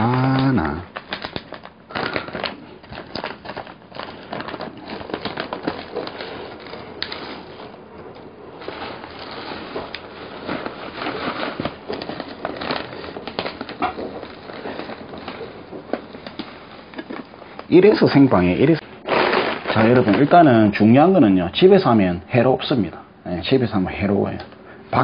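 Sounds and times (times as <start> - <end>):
plastic bag crinkling: 0.0 - 21.4
dry crumbs pouring: 17.7 - 20.9.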